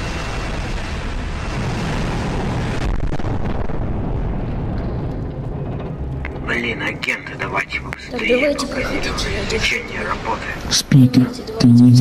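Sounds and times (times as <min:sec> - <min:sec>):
low rumble: 0:00.0 - 0:11.5
noisy hiss: 0:06.3 - 0:12.0.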